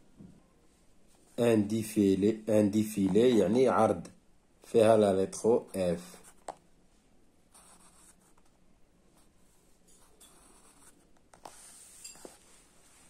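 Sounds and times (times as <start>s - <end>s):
pencil scratching on paper: 7.5s - 8.6s, 9.9s - 12.7s.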